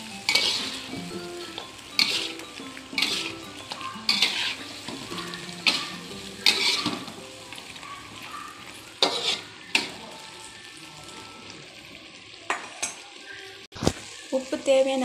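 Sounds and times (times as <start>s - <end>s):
food sizzling: 0.0s - 15.0s
metal spatula scraping a wok: 0.2s - 7.2s, 9.0s - 10.2s.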